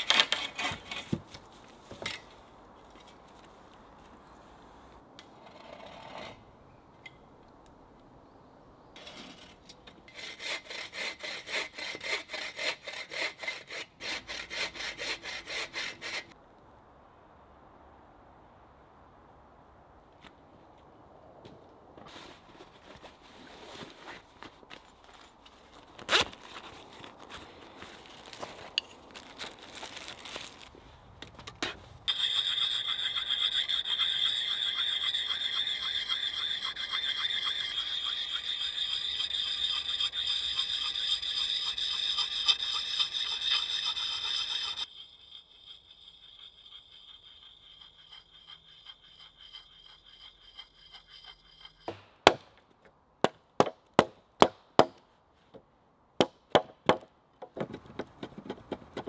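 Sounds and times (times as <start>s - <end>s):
sharpening stone rasping on axe: 32.1s - 52.3s
axe chopping wood: 51.9s - 52.6s, 53.2s - 55.0s.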